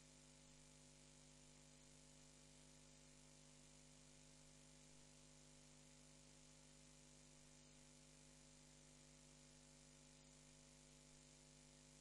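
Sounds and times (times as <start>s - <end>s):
faint steady hum and hiss: 0.0s - 12.0s.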